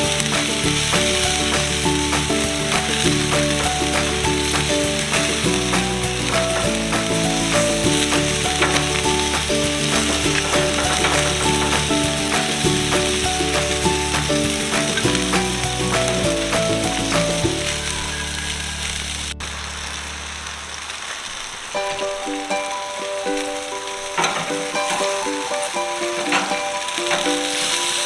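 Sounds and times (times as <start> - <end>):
instrumental music with steady beat: 0.0 - 18.0
chicken sizzling on a grill: 0.0 - 28.0.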